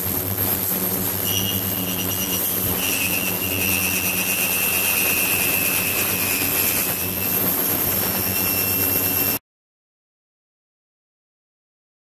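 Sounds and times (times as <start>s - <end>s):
water and cavitation hissing: 0.0s - 9.4s
thin high tone: 1.2s - 9.4s.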